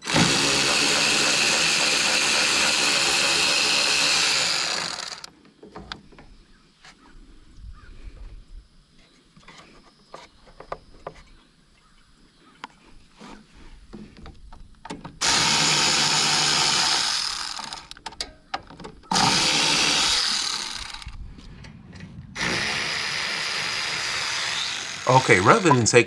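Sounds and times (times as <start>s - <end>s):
cordless ratchet spinning bolts: 0.0s - 5.3s, 15.2s - 18.0s, 19.1s - 21.1s.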